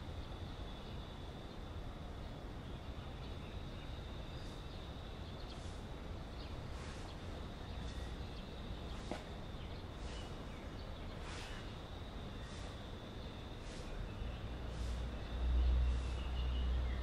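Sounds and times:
short hissing pulses: 11.2 - 15.3.

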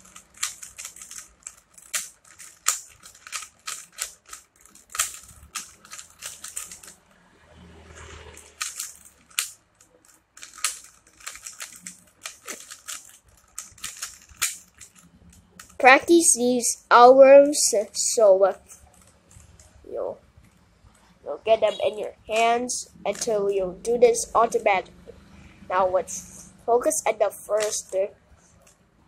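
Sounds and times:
plastic puzzle cube clicking: 0.0 - 7.0, 8.4 - 15.9.

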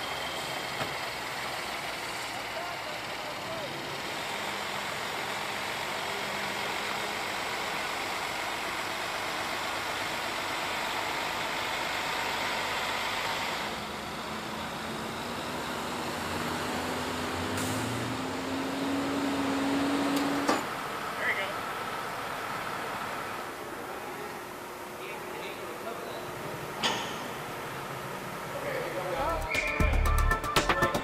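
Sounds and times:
heavy truck engine running: 0.0 - 25.0
road traffic noise: 0.0 - 30.3
vehicle engine speeding up: 15.2 - 20.5.

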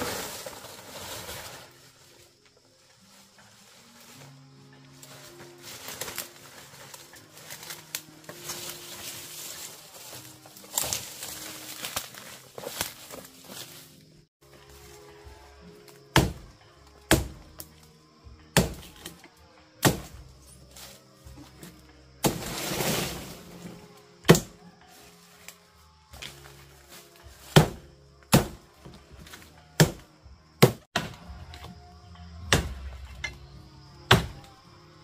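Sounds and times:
rustling scraping: 0.0 - 4.4, 5.0 - 14.0
soft background music: 0.0 - 35.0.

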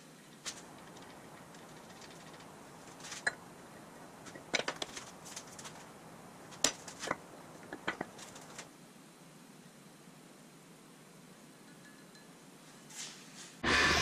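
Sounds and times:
sharp clicks and knocks: 4.3 - 5.9, 6.5 - 8.7.

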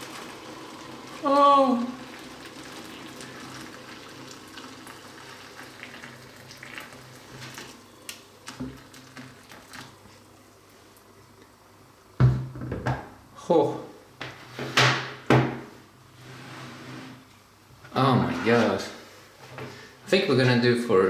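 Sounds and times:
hot water bubbling: 0.0 - 12.2.

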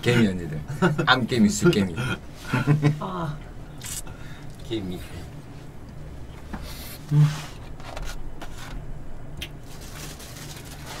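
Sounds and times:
scrapes and rustles at a table: 6.5 - 8.8
low hummed voice: 6.8 - 7.6.

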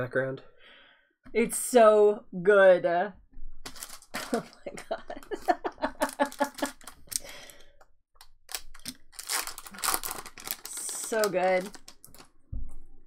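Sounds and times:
foil wrapper crinkling and tearing: 3.7 - 4.4, 5.4 - 7.4, 8.5 - 12.3.

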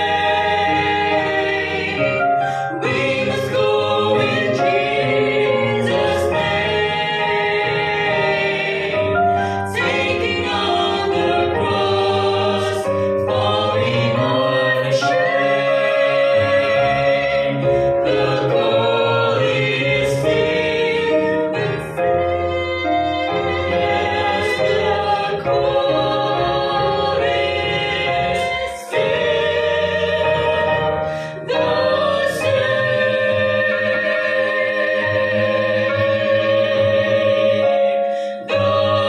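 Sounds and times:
vocal quartet singing in harmony: 0.0 - 39.0.

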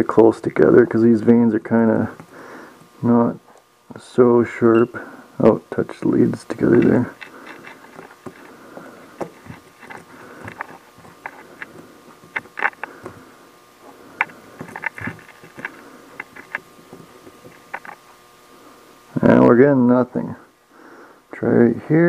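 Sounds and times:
faint steady hum: 0.0 - 22.0.

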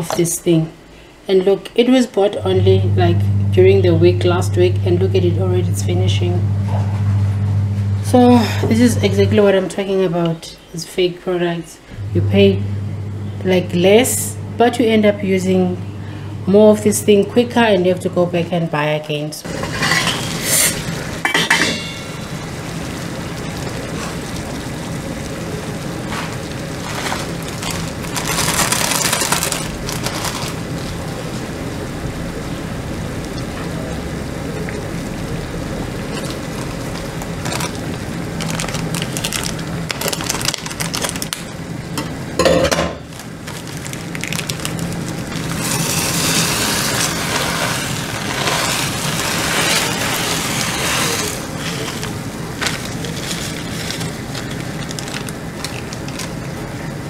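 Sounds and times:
faint hum: 2.1 - 10.9, 11.6 - 57.0
water boiling in a pot: 2.3 - 10.2, 11.9 - 57.0
dry mix poured from packet: 26.3 - 31.0, 36.1 - 41.4, 43.1 - 56.6.

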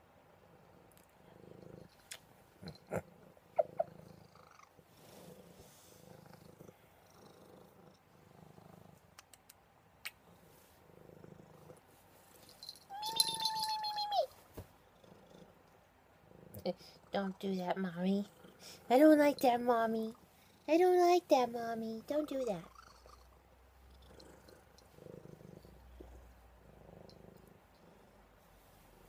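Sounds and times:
cat purring: 0.0 - 9.5, 10.1 - 12.8, 14.7 - 29.0
cat meowing: 12.9 - 14.3.

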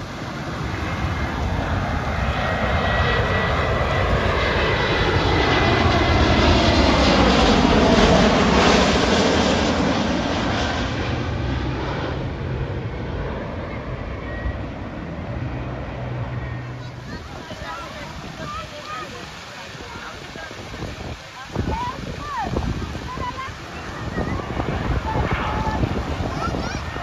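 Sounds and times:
jet engine whine falling in pitch: 0.0 - 19.0
jet airliner passing overhead: 0.0 - 27.0.

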